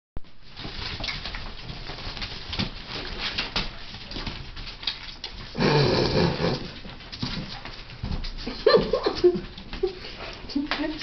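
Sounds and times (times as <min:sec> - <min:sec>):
dog claws clicking on hard floor: 0:00.6 - 0:08.5.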